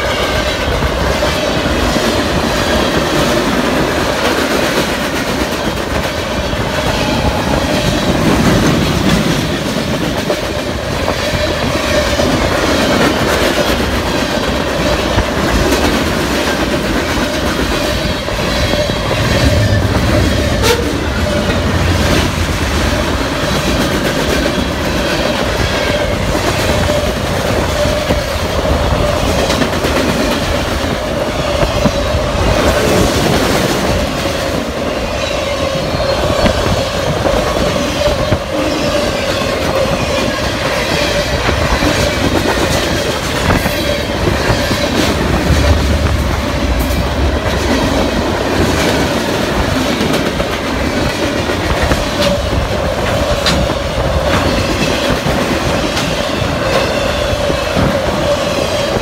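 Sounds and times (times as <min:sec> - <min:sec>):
train wheels clacking over rail joints: 0:00.0 - 0:59.0.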